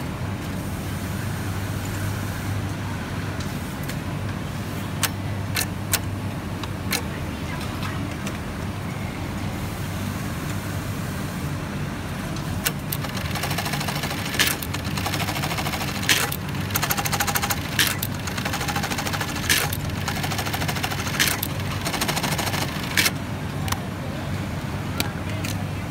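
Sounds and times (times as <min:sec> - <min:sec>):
rapid needle stitching: 0:12.7 - 0:23.1
sewing machine motor hum: 0:12.7 - 0:23.2.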